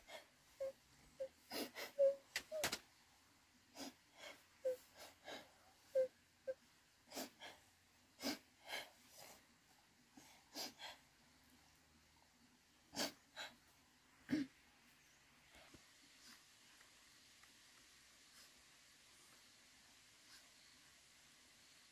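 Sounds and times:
person whimpering and sobbing: 0:00.0 - 0:02.7, 0:03.8 - 0:07.5.

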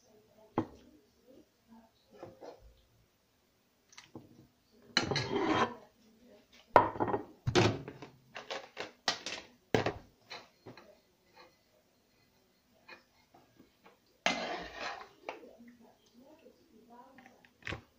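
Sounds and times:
dishes and utensils clattering: 0:04.9 - 0:05.8, 0:06.8 - 0:11.6, 0:12.8 - 0:15.4
short scrape: 0:14.3 - 0:15.1.

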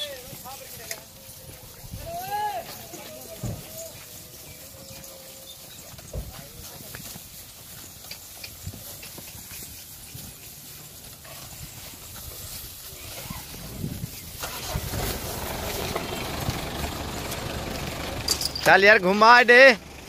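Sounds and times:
goat hooves shuffling and clicking: 0:00.0 - 0:19.6
low steady rumble: 0:14.8 - 0:20.0.

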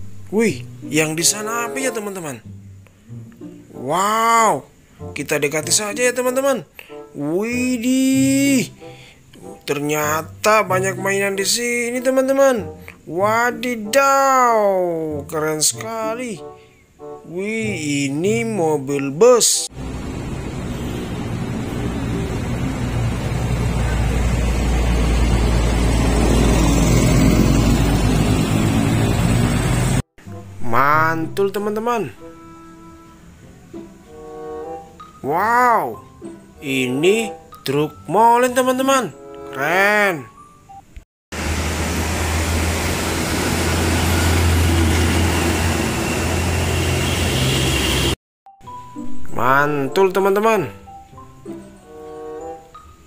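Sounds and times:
bus diesel engine drone: 0:19.7 - 0:30.0, 0:41.4 - 0:48.2
motorbikes passing: 0:19.7 - 0:30.0, 0:41.4 - 0:48.2
road and wind noise: 0:19.7 - 0:30.5, 0:41.4 - 0:48.2.

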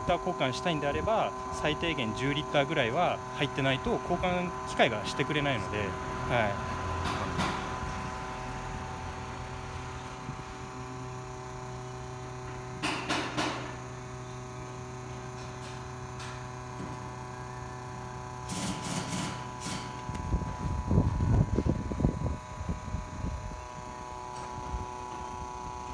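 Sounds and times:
machine electric hum with tones: 0:00.0 - 0:25.9.

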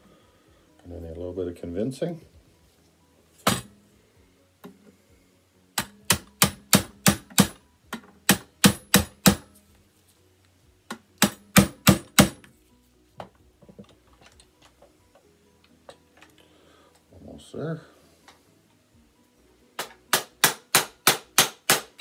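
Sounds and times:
hammer striking steel punch: 0:03.4 - 0:03.7, 0:05.8 - 0:07.6, 0:08.2 - 0:09.5, 0:11.2 - 0:12.5, 0:19.8 - 0:22.0.

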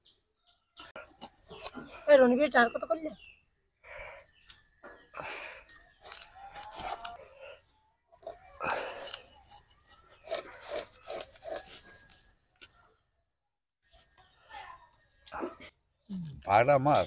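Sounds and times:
blades scraping fish scales: 0:00.7 - 0:02.4, 0:05.7 - 0:07.4, 0:08.2 - 0:12.3.

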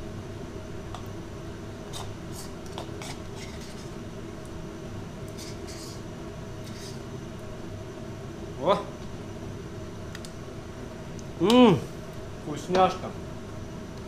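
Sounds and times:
low background hum: 0:00.0 - 0:14.0
metal spoon scraping a bowl: 0:01.9 - 0:03.9, 0:05.4 - 0:06.0, 0:06.6 - 0:07.0.

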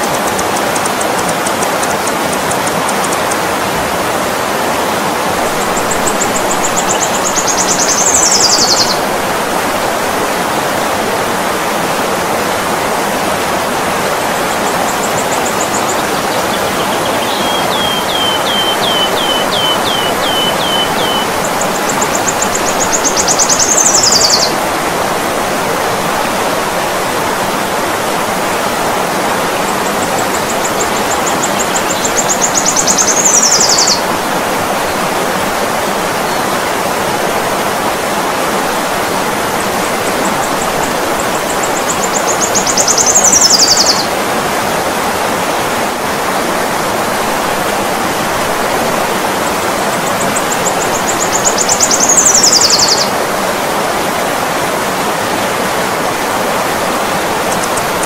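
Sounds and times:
river rushing: 0:00.0 - 0:58.0
hummingbird call: 0:16.9 - 0:24.5.

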